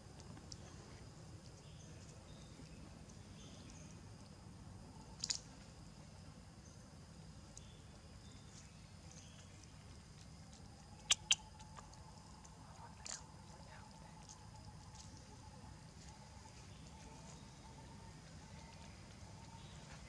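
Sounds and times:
monkey chewing: 10.1 - 13.2
sharp clicks: 11.0 - 11.9.

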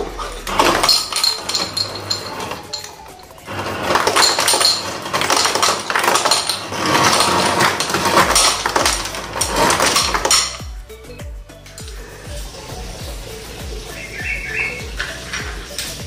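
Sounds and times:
ice clattering into a bowl: 0.4 - 10.7.

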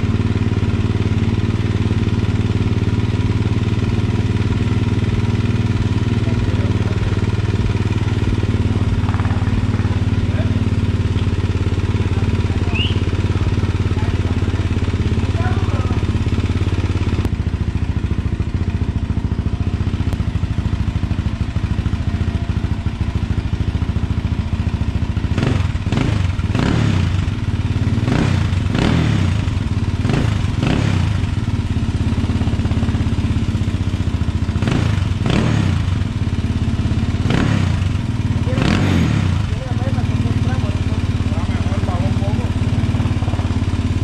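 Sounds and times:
quad engine idling and revving: 0.0 - 44.0.

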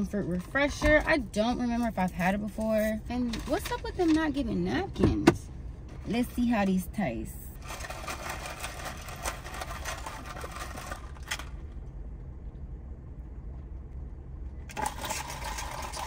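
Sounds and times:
steady low hum: 0.0 - 16.0
rustling of food packaging: 7.6 - 11.7.

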